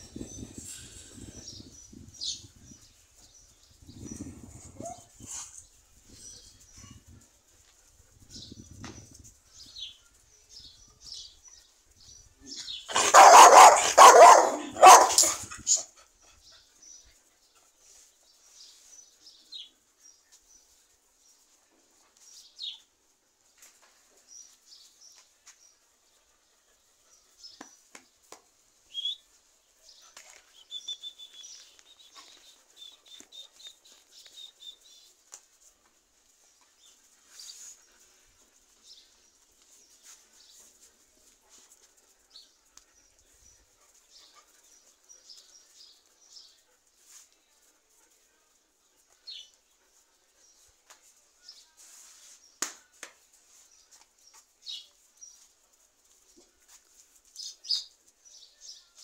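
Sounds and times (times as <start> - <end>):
dogs barking loudly: 12.9 - 15.9.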